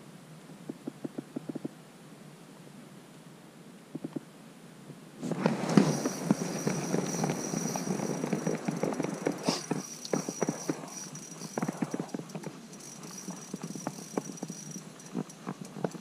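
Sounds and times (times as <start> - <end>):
jacket fabric rustling on microphone: 5.2 - 12.2
thin high whine: 5.2 - 15.5.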